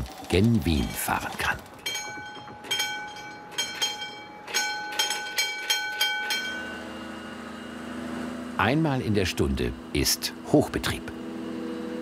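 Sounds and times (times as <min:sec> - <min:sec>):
warning bell ringing: 0:01.8 - 0:07.9.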